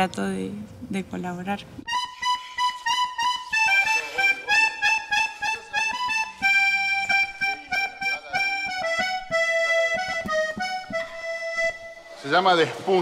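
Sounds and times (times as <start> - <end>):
background music: 1.8 - 13.0.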